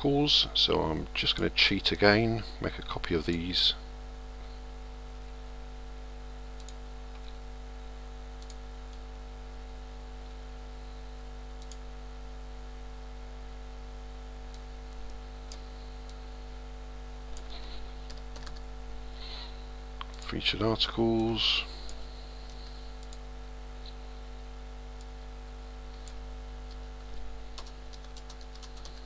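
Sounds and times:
electrical hum: 0.0 - 29.0
computer mouse clicks: 6.6 - 7.4, 8.4 - 9.0, 11.5 - 11.8, 17.3 - 18.6, 21.8 - 23.2.

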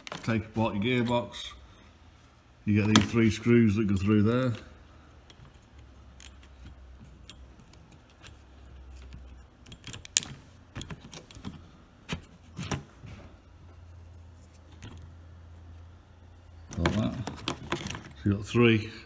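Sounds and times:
low steady hum: 0.0 - 19.0
small screws and gears rattling: 5.3 - 11.7.

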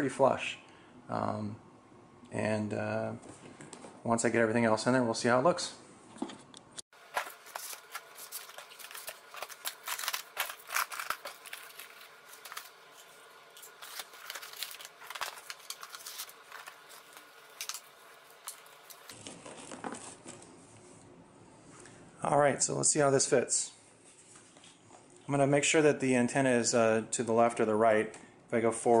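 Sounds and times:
rustling: 7.0 - 20.4.

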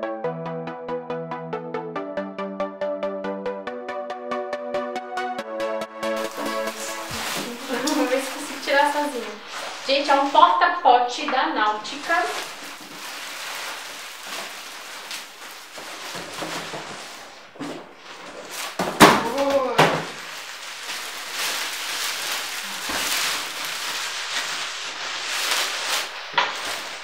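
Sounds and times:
plastic wrapping crinkling: 6.0 - 27.0
cardboard flaps rustling: 6.2 - 10.5, 11.3 - 27.0.

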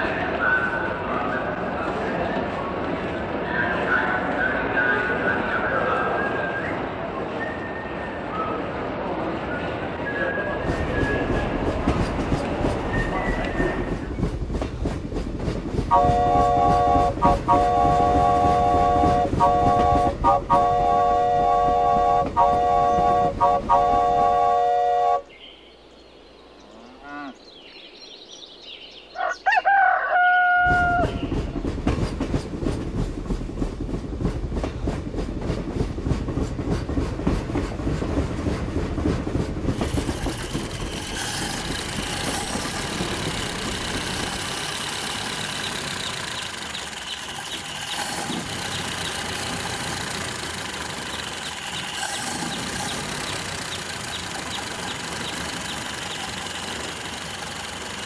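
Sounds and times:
model steam locomotive chuffing: 10.4 - 25.2, 31.3 - 58.0
rooster crowing: 29.2 - 31.2
mechanical running with high tones: 39.8 - 58.0.

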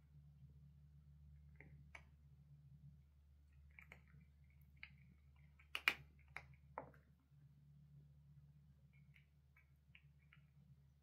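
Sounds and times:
cat chewing dried fruit: 3.5 - 7.0.

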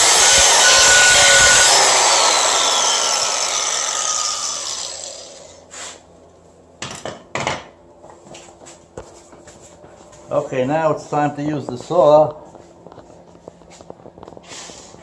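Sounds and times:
angle grinder cutting metal: 0.0 - 5.7.

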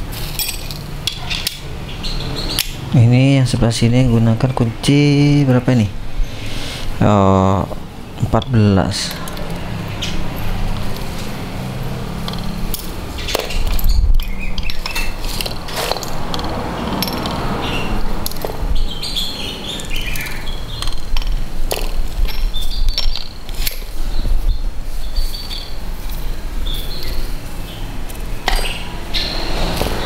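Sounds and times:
hand tools clinking on metal: 0.1 - 1.7, 8.3 - 18.6, 19.8 - 23.9, 28.1 - 30.0.

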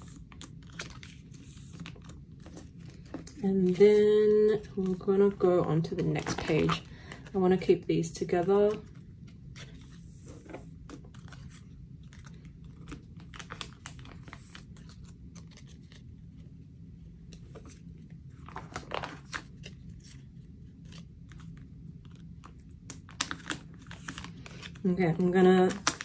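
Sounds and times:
cards rustling in plastic pockets: 0.0 - 26.0.

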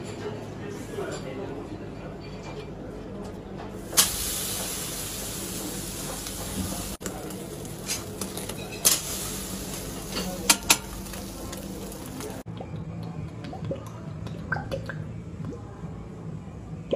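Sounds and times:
seafood sizzling on a grill: 3.8 - 12.4.

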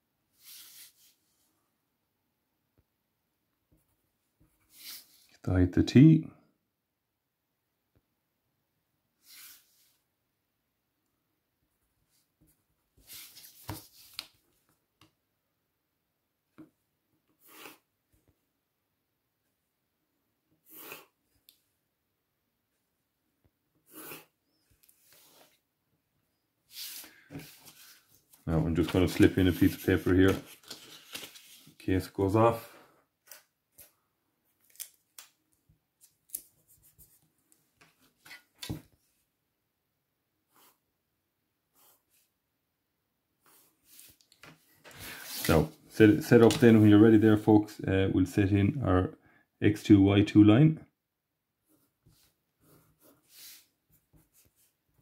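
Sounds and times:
paper rustling: 13.0 - 14.6, 26.7 - 32.1
pencil scratching on paper: 40.5 - 40.8, 41.7 - 42.3, 51.7 - 54.7.

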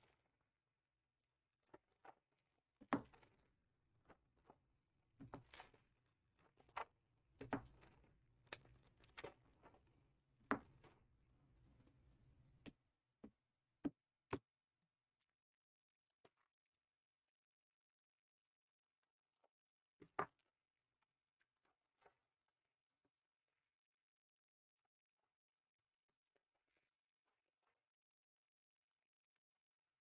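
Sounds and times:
hands handling card boxes: 5.2 - 9.9.

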